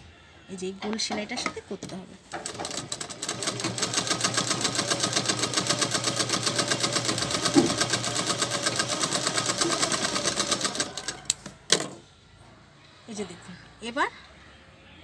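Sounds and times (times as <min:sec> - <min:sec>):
sewing machine stitching: 0:02.3 - 0:11.5.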